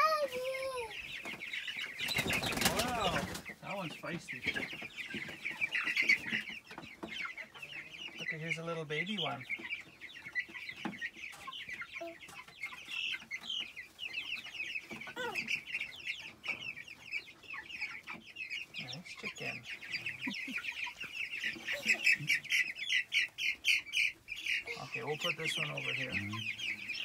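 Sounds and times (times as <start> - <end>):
chicks peeping: 0.0 - 27.0.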